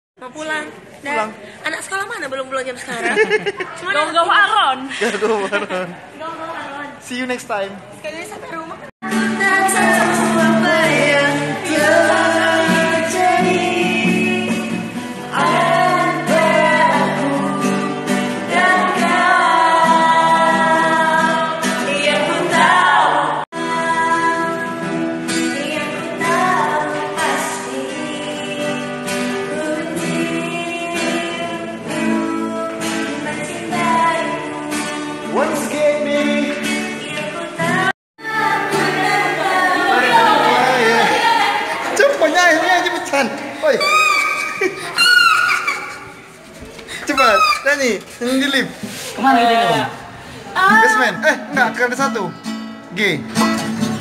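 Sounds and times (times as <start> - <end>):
acoustic guitar strumming: 9.0 - 23.0, 23.6 - 43.6, 51.0 - 54.0
woman singing pop love song: 9.0 - 35.0, 36.8 - 39.4.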